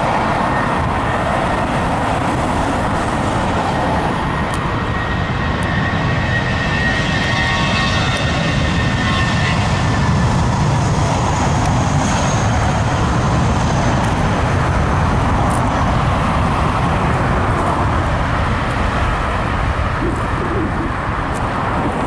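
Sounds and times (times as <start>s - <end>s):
cars on road: 0.0s - 22.0s
jet engines roaring: 0.0s - 22.0s.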